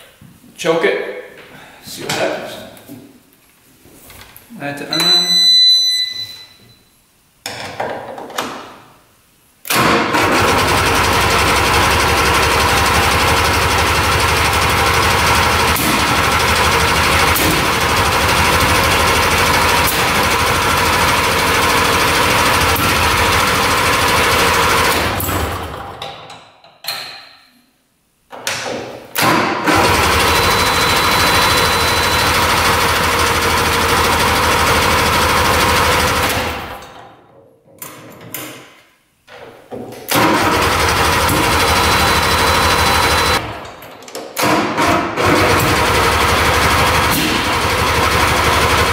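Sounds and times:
two-stroke engine running: 0:10.2 - 0:26.0, 0:29.7 - 0:36.8, 0:40.2 - 0:43.6, 0:45.2 - 0:48.9.

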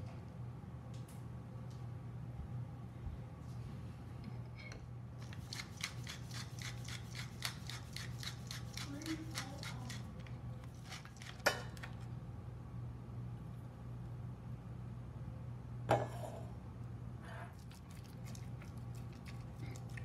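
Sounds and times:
pepper mill grinding: 0:05.2 - 0:12.0.

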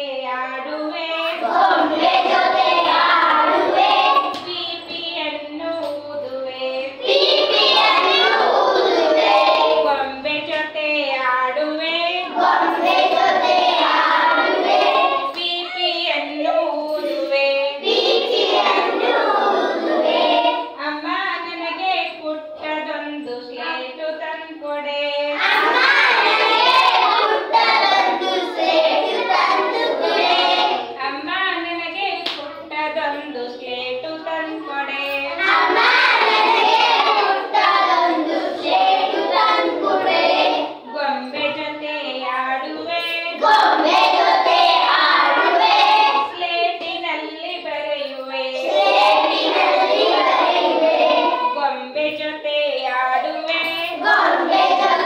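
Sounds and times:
children singing in chorus: 0:01.1 - 0:04.5, 0:07.0 - 0:10.0, 0:12.2 - 0:15.9, 0:17.0 - 0:20.8, 0:25.4 - 0:31.0, 0:35.3 - 0:40.9, 0:43.4 - 0:46.4, 0:48.5 - 0:51.6, 0:53.9 - 0:55.0.

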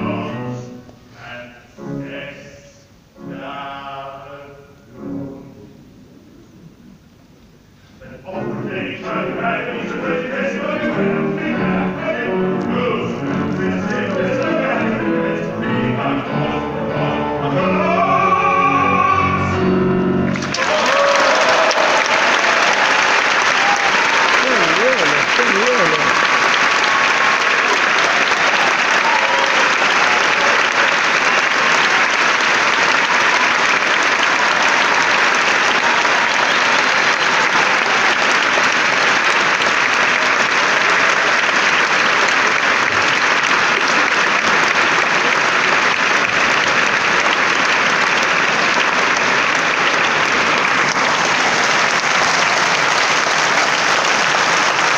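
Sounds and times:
audience applauding: 0:20.2 - 0:54.9.

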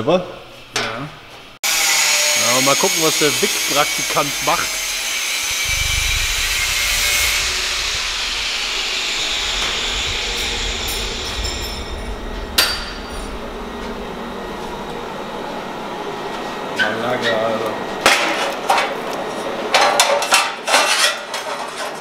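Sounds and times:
power tool running: 0:01.7 - 0:11.6.

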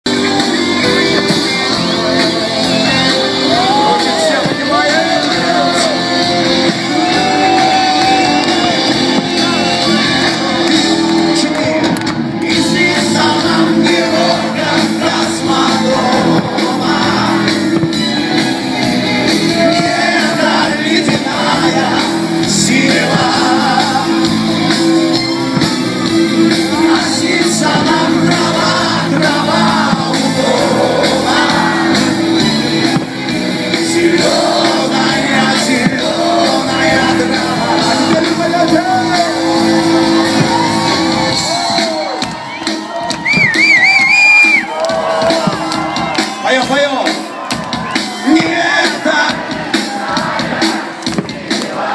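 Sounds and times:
crowd shouting and cheering: 0:00.0 - 0:51.9
person singing: 0:00.1 - 0:17.8
live rock band playing: 0:00.1 - 0:51.9.

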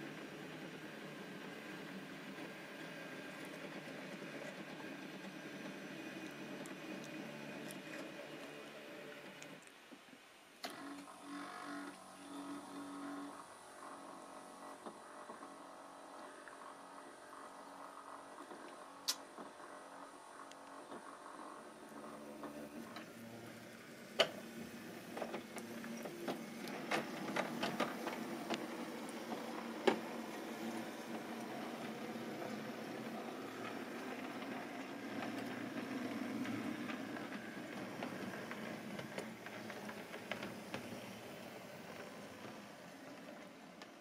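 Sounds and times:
model locomotive motor whirring: 0:00.0 - 0:09.7, 0:10.6 - 0:44.0
wheels clicking over rail joints: 0:21.6 - 0:44.0.

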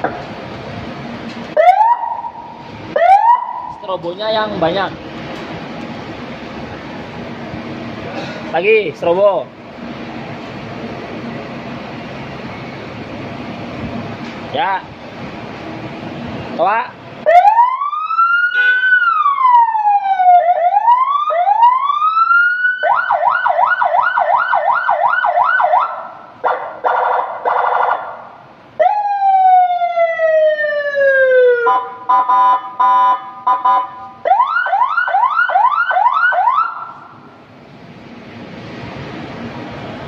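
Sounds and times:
electronic police siren: 0:01.6 - 0:03.8, 0:17.3 - 0:28.2, 0:28.8 - 0:37.1.

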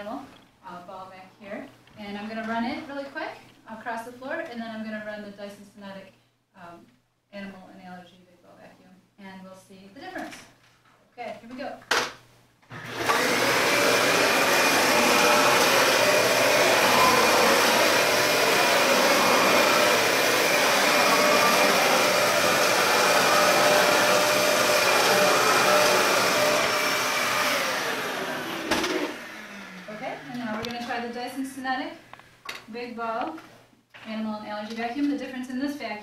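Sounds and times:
vacuum cleaner running with whine: 0:12.7 - 0:31.0.

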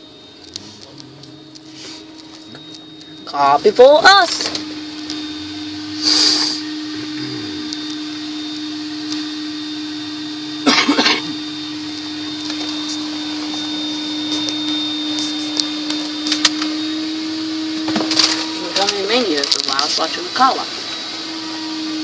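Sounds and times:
muffled car wash machine hum: 0:00.0 - 0:22.0
blower whoosh: 0:03.4 - 0:10.6
loud burst of noise: 0:03.8 - 0:09.1.

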